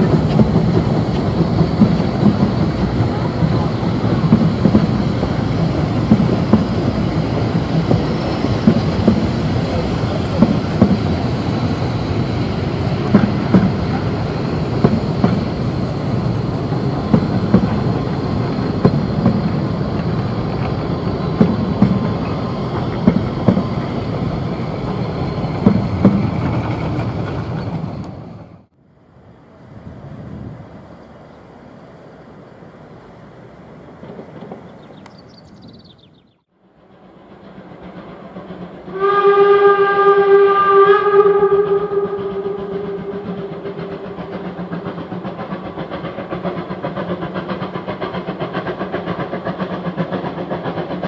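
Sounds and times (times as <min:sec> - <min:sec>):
train coaches rumbling on track: 0:00.0 - 0:51.0.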